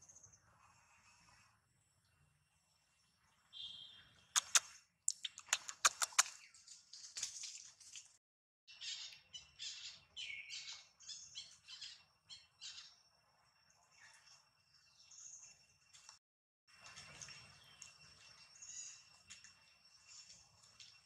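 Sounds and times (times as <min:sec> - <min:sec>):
sharp clicks: 0:04.4 - 0:06.4.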